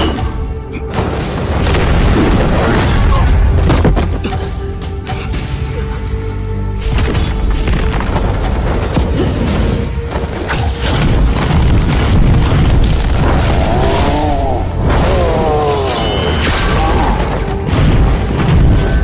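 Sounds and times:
dramatic film score: 0.0s - 19.0s
heavy booms and impacts: 0.9s - 4.0s.

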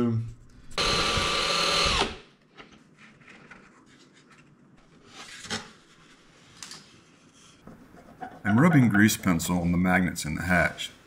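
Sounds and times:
cordless drill: 0.8s - 2.2s.

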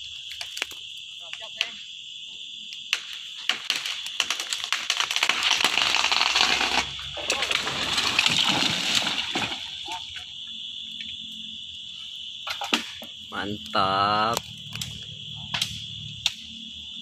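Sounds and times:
tree crashing down: 3.0s - 10.2s.

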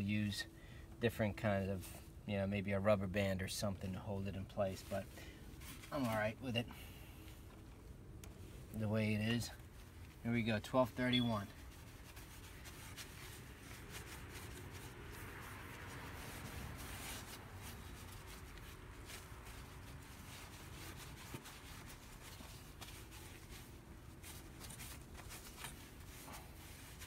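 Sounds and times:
paint mitt rubbing on wood: 8.4s - 27.0s.

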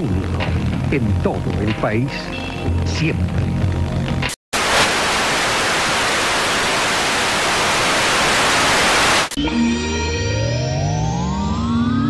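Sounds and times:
tv static hiss: 4.5s - 9.4s
music with rising tones: 9.4s - 12.0s.

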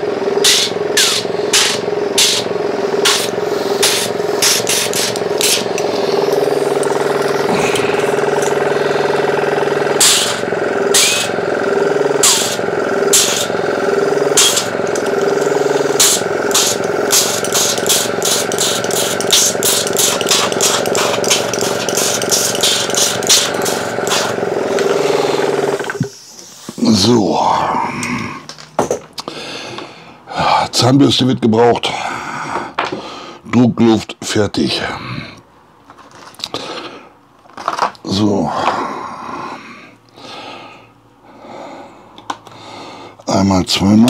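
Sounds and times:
air compressor humming: 0.0s - 30.6s.

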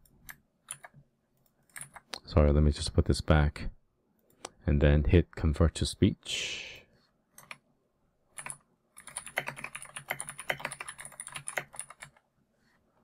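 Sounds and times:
typing on computer keyboard: 0.1s - 1.0s, 1.7s - 2.1s, 7.4s - 7.6s, 8.3s - 12.2s.

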